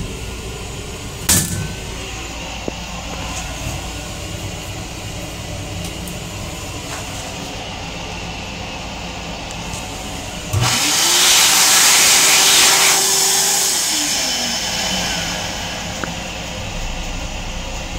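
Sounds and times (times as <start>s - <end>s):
railcar low rumble: 0.0s - 10.6s, 14.4s - 17.9s
electric hand dryer: 9.7s - 16.8s.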